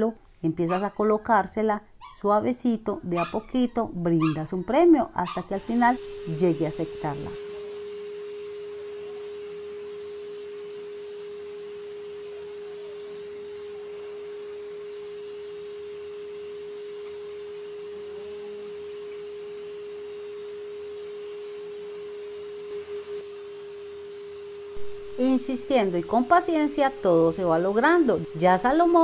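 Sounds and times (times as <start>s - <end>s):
steady pure tone: 5.4s - 15.6s, 22.4s - 29.0s.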